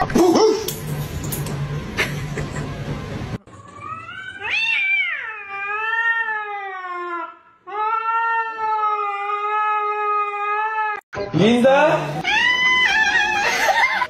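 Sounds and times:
cat meowing: 3.6 - 11.0, 12.2 - 13.5.

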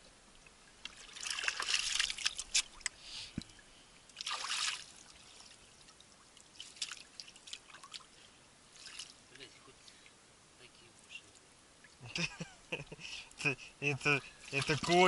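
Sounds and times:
water splashing by hands: 0.9 - 3.5, 4.2 - 5.6, 6.5 - 8.1, 14.4 - 15.0.

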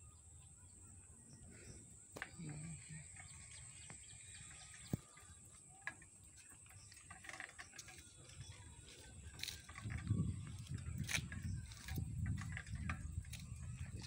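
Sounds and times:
birds chirping: 0.0 - 14.0.

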